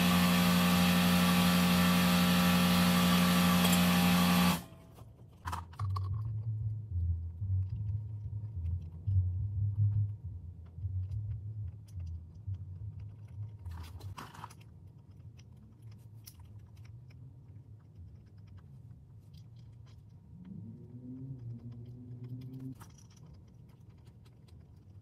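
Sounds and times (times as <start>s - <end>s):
machine hum with held tones: 0.0s - 5.0s.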